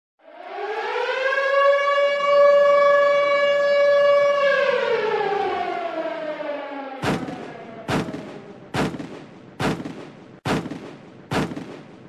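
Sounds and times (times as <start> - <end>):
air-raid siren wailing: 0.2 - 8.8.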